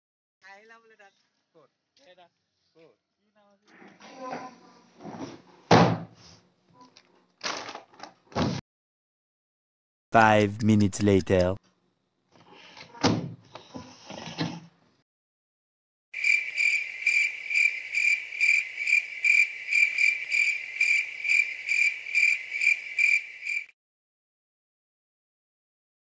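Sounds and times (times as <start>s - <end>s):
thump: 5.7s - 6.2s, 8.3s - 8.6s
cricket chirping: 16.2s - 23.7s.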